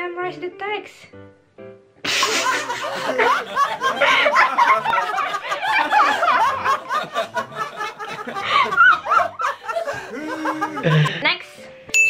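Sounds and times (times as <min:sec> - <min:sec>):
man laughing: 0:02.1 - 0:11.2
woman giggling: 0:08.1 - 0:11.4.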